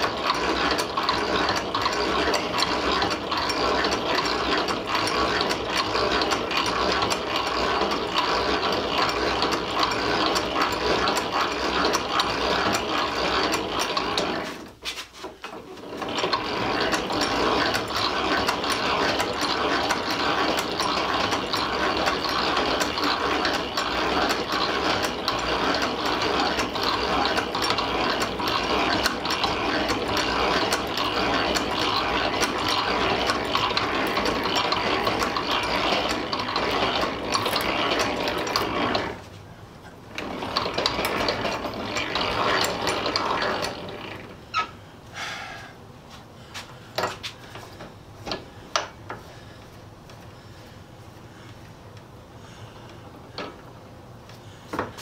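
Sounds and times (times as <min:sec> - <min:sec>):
hand-crank drill press gears clicking: 0:00.0 - 0:44.8, 0:46.6 - 0:50.3, 0:52.7 - 0:55.0
drill bit boring into steel: 0:15.9 - 0:39.2, 0:40.1 - 0:44.7.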